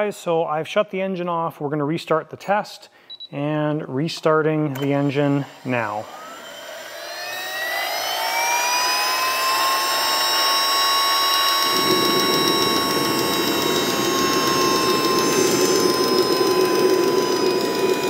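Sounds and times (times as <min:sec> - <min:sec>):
jet engine starter whine: 0:04.7 - 0:18.0
rough rushing noise: 0:11.6 - 0:18.0.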